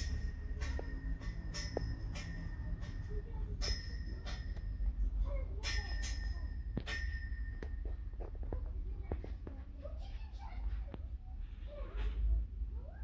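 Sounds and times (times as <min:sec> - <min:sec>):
bell-like dings: 0:00.0 - 0:05.0, 0:05.6 - 0:08.0
steady low hum: 0:00.0 - 0:13.0.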